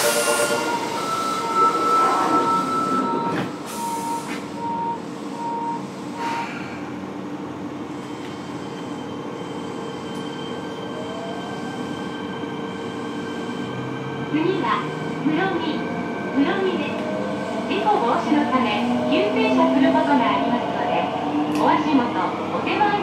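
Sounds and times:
door warning beeps: 0.0 - 6.5.

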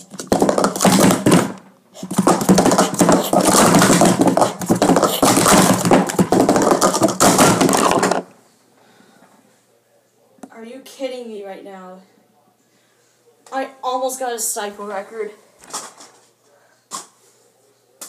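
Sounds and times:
plastic cups clattering: 0.0 - 8.3.

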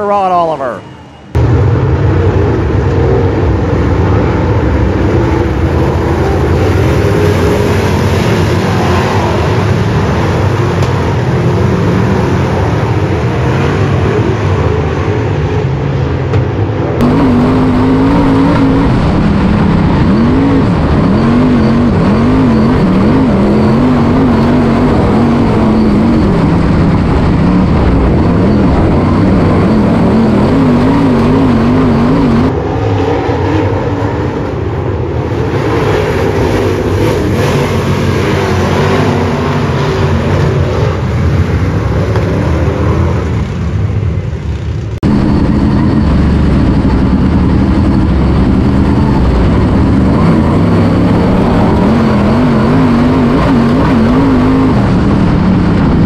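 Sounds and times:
race car engines running: 0.0 - 56.0.

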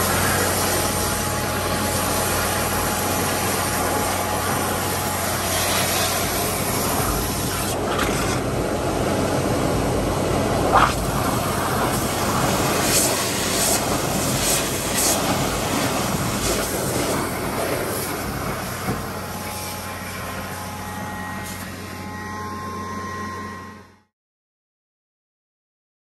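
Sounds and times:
faint steady whine: 0.0 - 24.1
vacuum blower and engine roar: 0.0 - 24.1
wet soil rushing up suction tube: 10.7 - 18.2.

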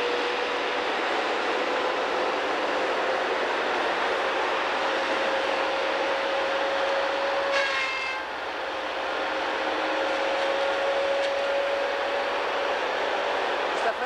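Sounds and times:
constant high whine: 0.0 - 14.0
forestry machine engine running: 0.0 - 14.0
sharp multi-tone whine: 4.1 - 12.8.

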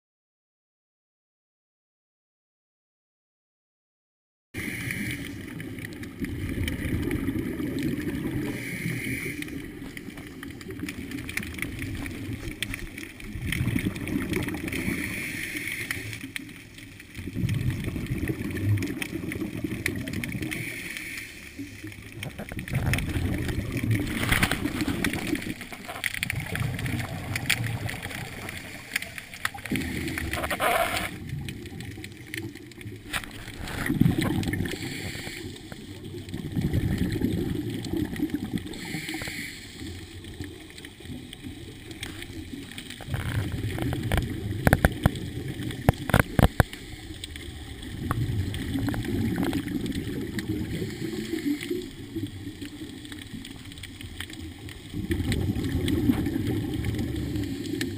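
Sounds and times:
regulator bubbles gurgling: 4.6 - 57.9
regulator hiss: 38.8 - 40.1.

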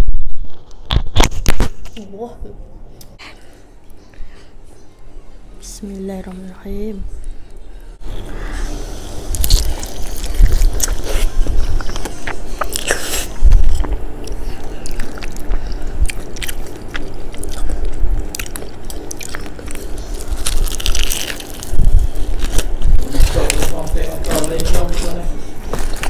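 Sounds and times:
crunching fried chicken: 9.3 - 26.0
wet chewing: 9.3 - 26.0.

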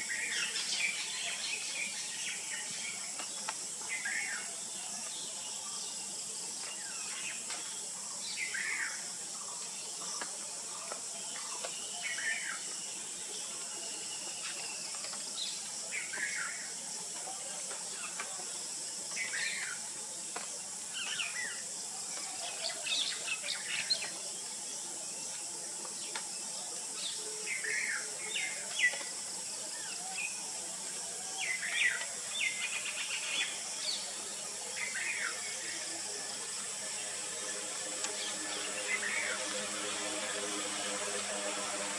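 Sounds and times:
steady high hiss: 0.0 - 41.9.

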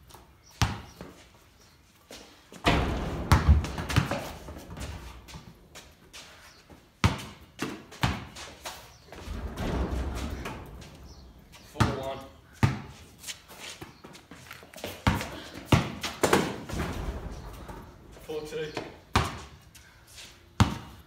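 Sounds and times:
basketball thumping on floor: 2.6 - 5.4.

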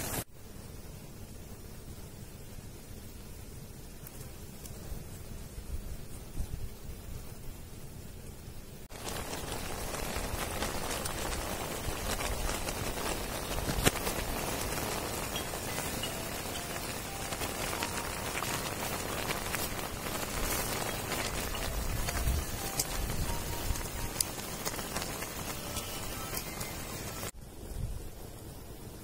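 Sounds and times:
meat sizzling in a pot: 0.0 - 0.3, 8.9 - 27.4.

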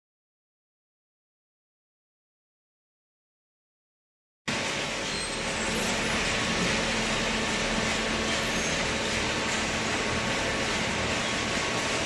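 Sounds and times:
baling machine running: 4.5 - 12.0.

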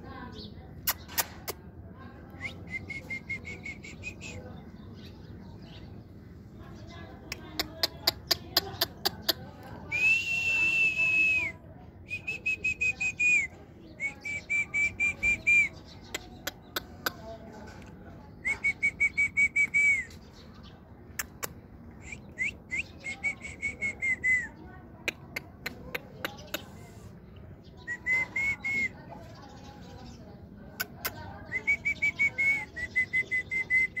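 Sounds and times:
person whistling: 10.0 - 11.5
sharp clicks: 21.2 - 21.6.

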